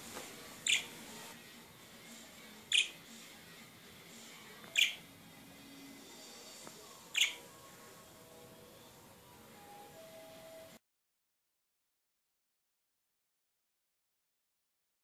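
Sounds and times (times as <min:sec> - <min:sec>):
budgerigar chirping: 0:00.6 - 0:00.9, 0:02.7 - 0:03.0, 0:04.7 - 0:05.0, 0:07.1 - 0:07.4.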